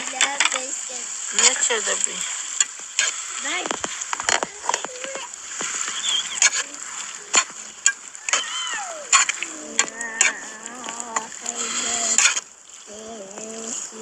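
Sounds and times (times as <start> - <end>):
metal ladle scraping a pan: 2.6 - 3.7, 5.6 - 8.5, 9.1 - 12.5.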